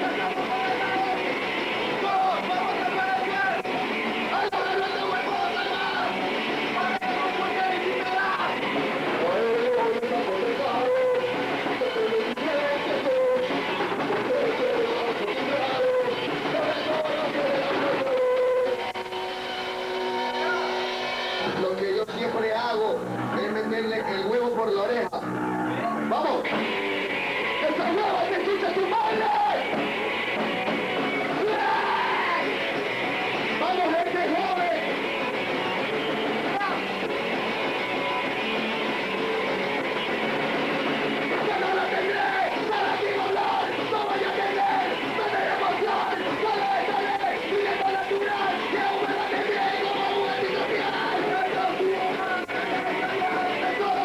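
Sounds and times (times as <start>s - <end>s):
punk band playing live: 0.0s - 22.4s, 25.2s - 54.0s
drum hits: 29.6s - 31.7s
person shouting: 31.4s - 32.5s.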